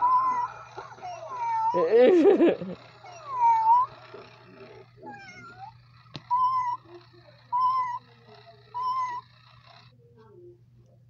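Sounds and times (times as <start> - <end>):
toy cat meowing: 0.0 - 2.0, 2.8 - 9.9
steady low hum: 0.0 - 11.0
toy click: 2.6 - 9.9.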